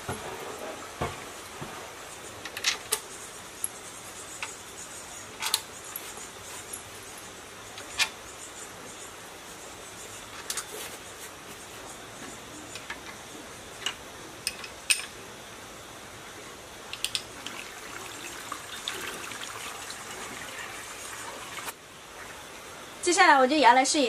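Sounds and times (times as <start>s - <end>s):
water pouring into tank: 17.4s - 21.7s.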